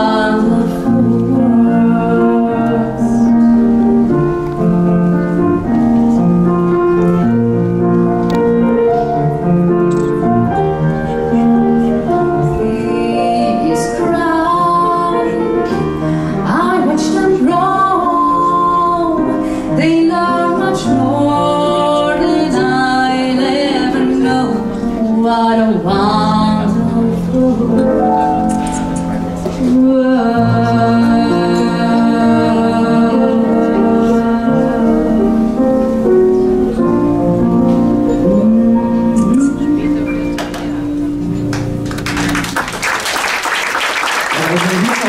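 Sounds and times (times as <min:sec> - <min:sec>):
woman singing into a microphone: 0:00.0 - 0:03.7, 0:12.0 - 0:36.1, 0:38.0 - 0:40.5
instrumental accompaniment: 0:00.0 - 0:44.1.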